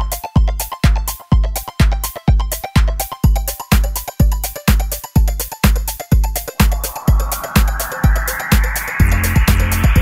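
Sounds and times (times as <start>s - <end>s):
kick drum beat: 0.0s - 6.8s.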